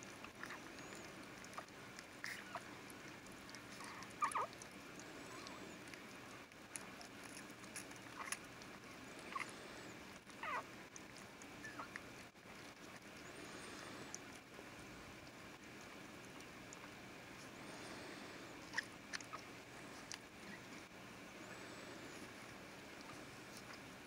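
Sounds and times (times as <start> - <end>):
faint clicks and rustling: 0.0 - 24.0
newborn puppies squeaking: 3.8 - 4.6, 9.2 - 9.6, 10.4 - 10.7, 11.6 - 12.0.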